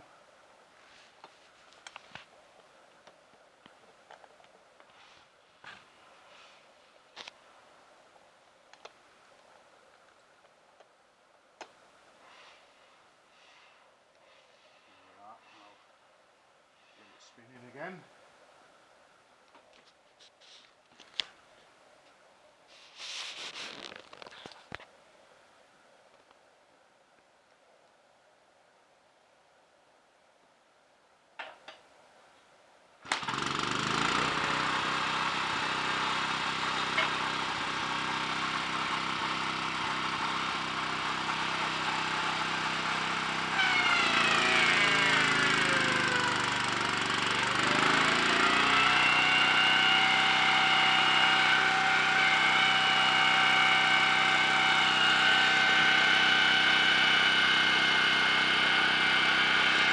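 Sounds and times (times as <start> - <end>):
small petrol engine running: 33.0 - 59.9.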